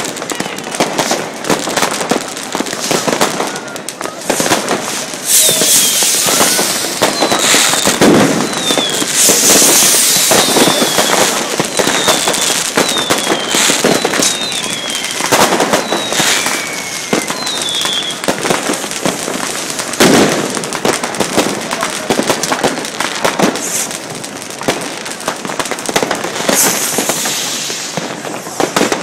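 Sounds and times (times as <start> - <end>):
fireworks bangs and crackling: 0.0 - 29.0
falling whistles: 5.2 - 18.3.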